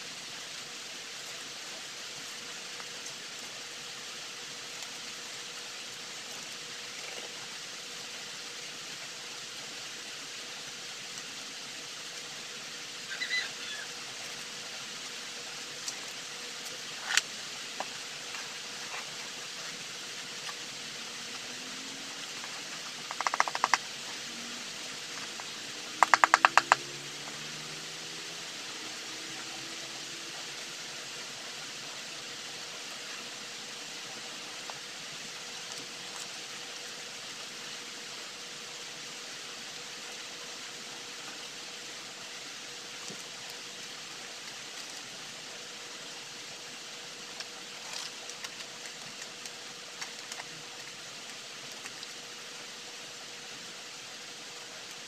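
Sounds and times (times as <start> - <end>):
background hiss: 0.0 - 55.0
faint steady hum: 0.0 - 55.0
sharp clicks: 23.1 - 23.8, 26.0 - 26.8
trowel and plant pots tapping: 26.0 - 26.8.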